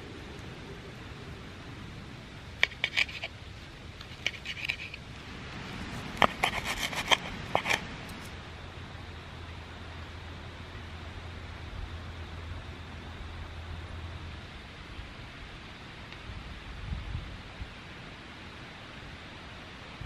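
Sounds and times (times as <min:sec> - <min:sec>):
knife and fork scraping wooden bowl: 0:02.6 - 0:03.3, 0:04.0 - 0:05.0, 0:06.2 - 0:07.8.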